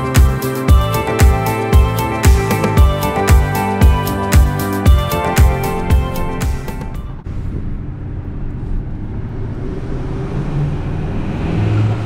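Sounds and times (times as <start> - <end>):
truck engine hum: 0.0 - 12.0
road noise inside cab: 6.9 - 12.0.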